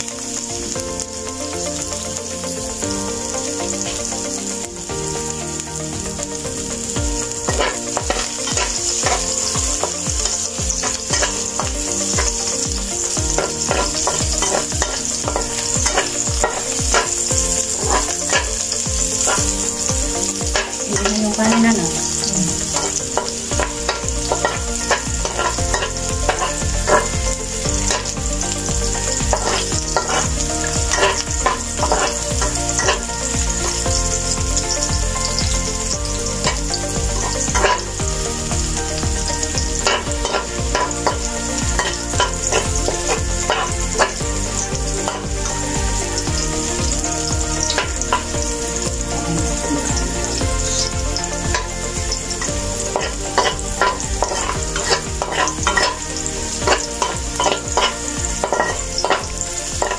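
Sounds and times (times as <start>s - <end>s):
garlic sizzling in hot oil: 0.0s - 59.9s
spatula scraping and tapping pan: 7.4s - 35.7s, 36.5s - 38.0s, 38.9s - 45.3s, 50.8s - 59.9s.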